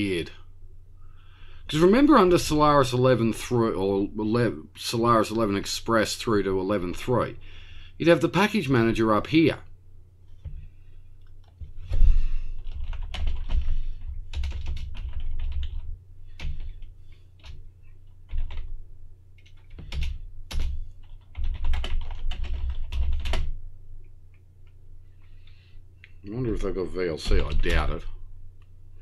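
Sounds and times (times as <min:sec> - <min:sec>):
typing on computer keyboard: 0:12.6 - 0:16.8, 0:18.3 - 0:18.7, 0:19.4 - 0:23.5.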